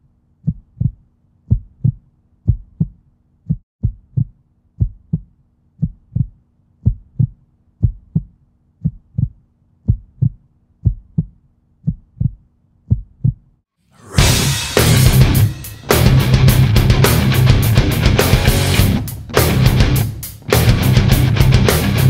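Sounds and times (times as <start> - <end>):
heartbeat thumps: 0.4 - 13.5.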